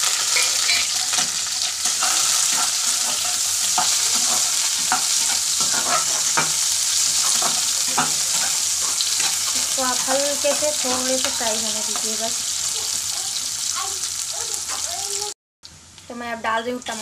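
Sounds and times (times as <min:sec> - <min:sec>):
metal spatula scraping a pan: 0:00.0 - 0:13.4
onions sizzling in hot oil: 0:00.0 - 0:17.0.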